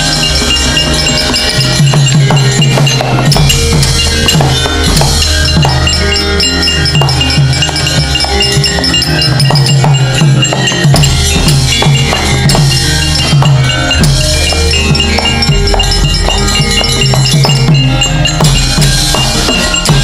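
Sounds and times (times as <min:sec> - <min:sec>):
gamelan ensemble playing: 0:00.0 - 0:20.0.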